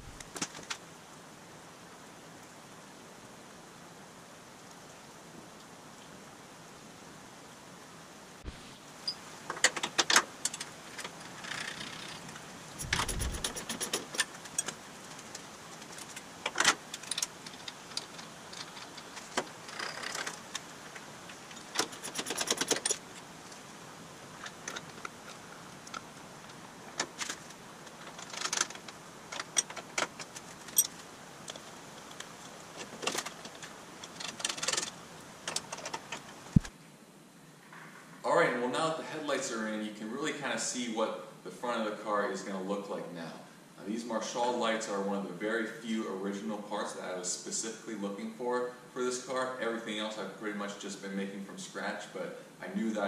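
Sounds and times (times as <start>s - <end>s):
rapid even clicking: 9.6s - 20.7s, 21.4s - 23.2s
hand tools clinking on metal: 12.8s - 14.8s.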